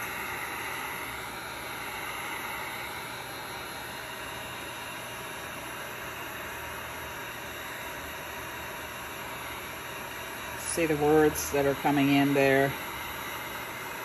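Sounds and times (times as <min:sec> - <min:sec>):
heat gun blowing air: 0:00.0 - 0:14.0.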